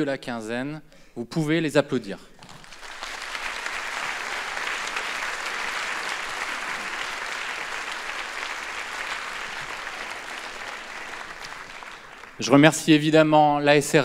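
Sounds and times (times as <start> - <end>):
audience applauding: 2.4 - 12.8.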